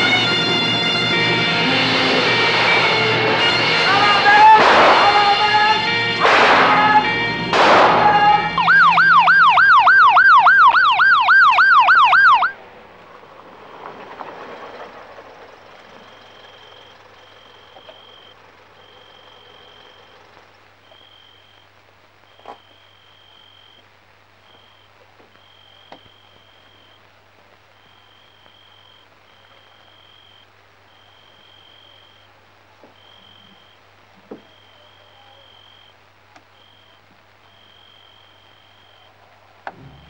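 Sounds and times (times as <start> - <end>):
siren wailing: 0.0 - 12.6
dramatic film music: 0.1 - 8.6.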